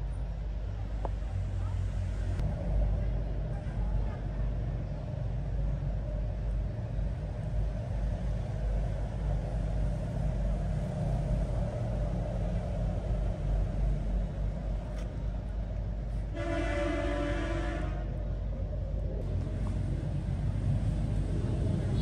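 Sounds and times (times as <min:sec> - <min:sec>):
flat horn blast: 0:16.3 - 0:18.1
low rumble: 0:17.4 - 0:22.0.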